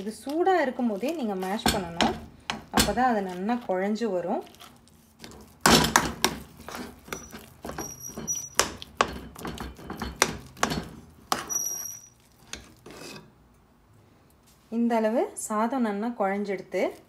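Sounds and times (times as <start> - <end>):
ladle scraping a metal pot: 5.2 - 13.4
high squeals of metal on metal: 7.1 - 8.7, 11.3 - 12.2.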